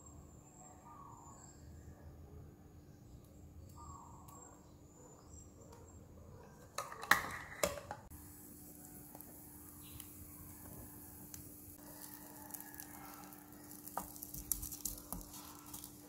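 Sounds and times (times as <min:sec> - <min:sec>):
kitchenware clattering: 0:06.6 - 0:08.1.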